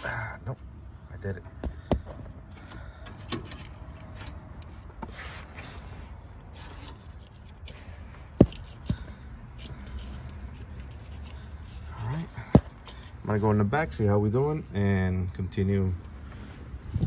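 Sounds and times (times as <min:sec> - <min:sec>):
metal line scraping and rubbing: 0:09.5 - 0:14.5.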